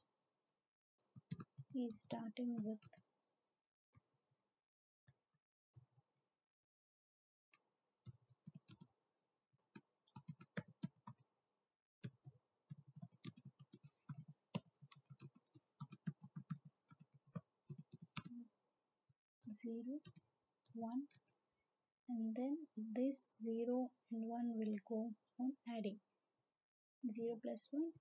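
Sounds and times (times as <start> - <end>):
typing on computer keyboard: 1.2 - 1.7, 8.4 - 8.9, 9.7 - 11.2, 12.0 - 18.4.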